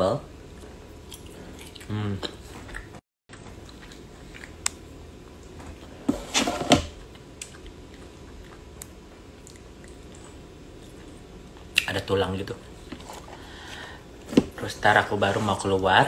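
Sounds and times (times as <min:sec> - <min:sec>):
person chewing food: 0:00.5 - 0:05.6, 0:07.0 - 0:11.9.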